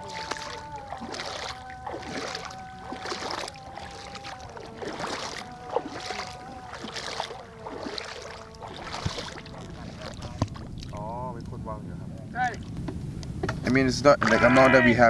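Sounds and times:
footsteps splashing in shallow water: 0.0s - 11.1s
faint steady hum: 0.0s - 15.0s.

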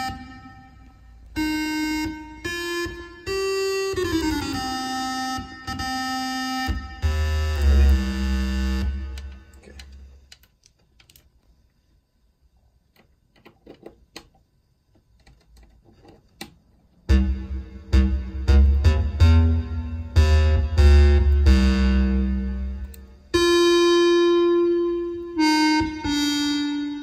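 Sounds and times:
square-wave synthesizer notes: 0.0s - 10.1s, 17.0s - 27.0s
scattered clicks: 9.1s - 11.5s
deep bass note: 17.1s - 22.9s.

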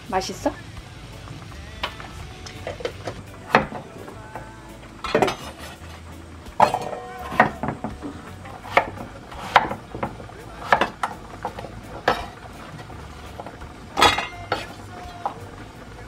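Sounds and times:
knife chopping on wooden board: 8.6s - 11.0s.

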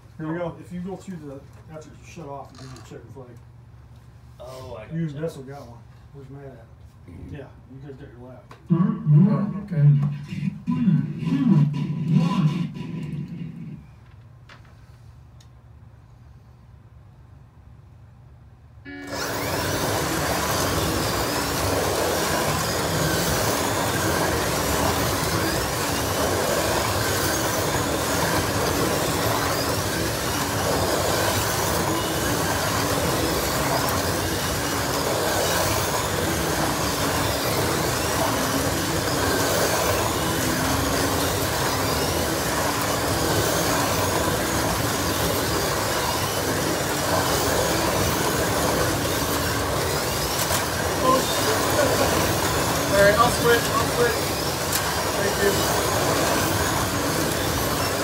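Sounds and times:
slot cars racing on track: 19.0s - 58.0s.

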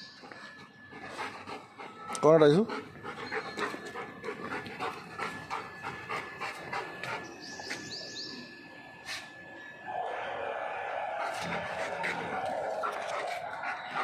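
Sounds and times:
dog panting: 0.1s - 8.0s, 11.3s - 14.0s.

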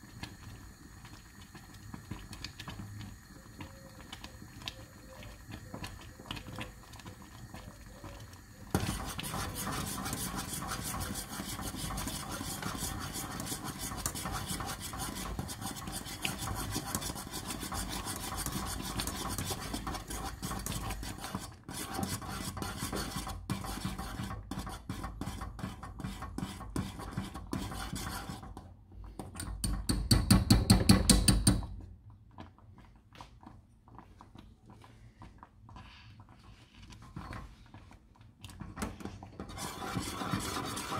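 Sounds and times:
kitchen utensils rasping and scraping: 8.7s - 26.2s, 39.4s - 40.9s.

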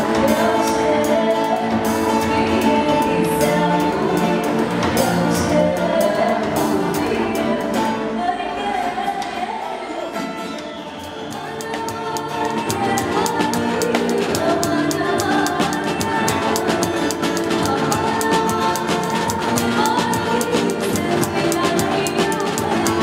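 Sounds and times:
upbeat music with singing: 0.0s - 23.0s
steady drum beat: 11.2s - 23.0s.

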